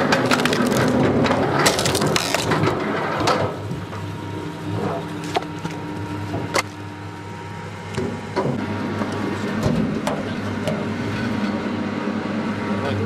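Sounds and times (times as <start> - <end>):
log splitter motor idling: 0.0 - 2.8.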